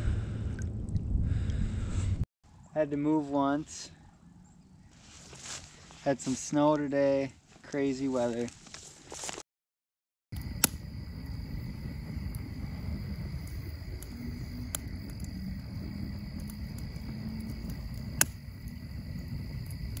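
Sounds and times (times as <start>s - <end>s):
low rumble: 0.0s - 2.2s, 10.4s - 20.0s
sharp clicks: 10.4s - 10.8s.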